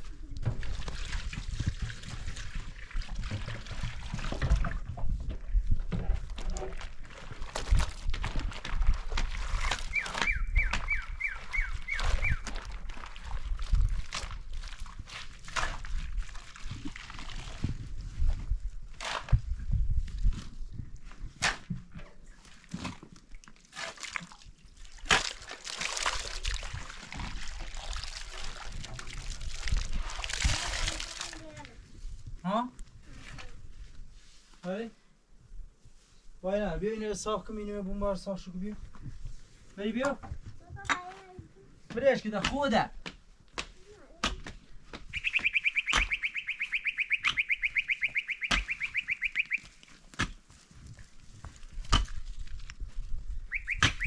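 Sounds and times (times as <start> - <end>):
water splashing and trickling: 0.0 - 18.4, 22.3 - 31.8.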